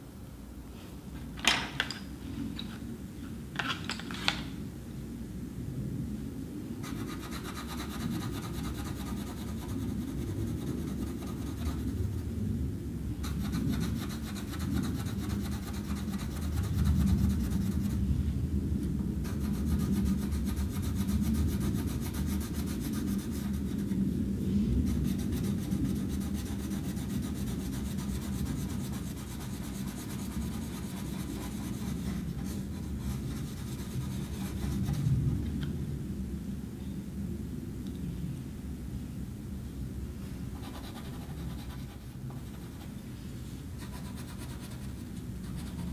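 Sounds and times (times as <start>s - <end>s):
pencil scratching on paper: 6.8s - 11.9s, 13.2s - 18.0s, 24.9s - 35.0s, 40.6s - 42.9s, 43.8s - 45.9s.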